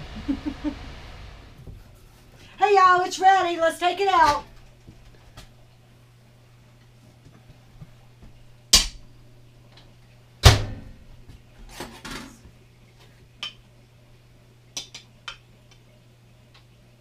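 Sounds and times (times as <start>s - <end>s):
microwave door shutting with thud: 10.4s - 10.9s.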